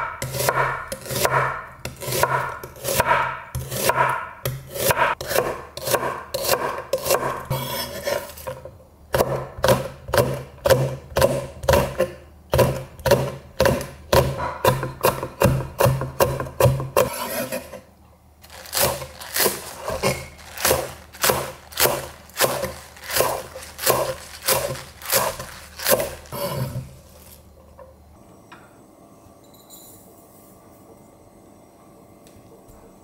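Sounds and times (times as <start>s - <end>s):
knife chopping on wooden board: 0.1s - 8.2s, 9.1s - 17.6s, 18.8s - 26.9s.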